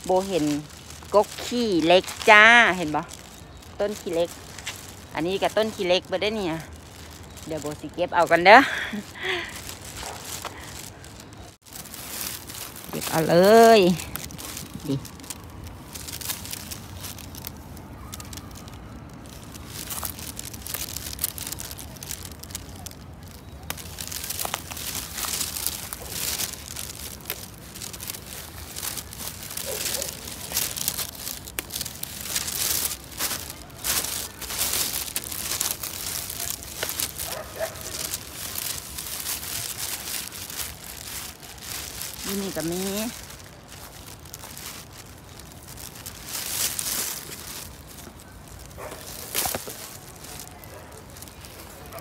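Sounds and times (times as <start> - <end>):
shrub leaves and twigs rustling: 0.0 - 52.0.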